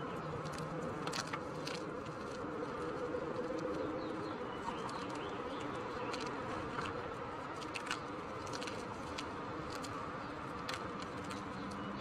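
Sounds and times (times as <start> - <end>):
chalk crumbling in hands: 0.0 - 12.0.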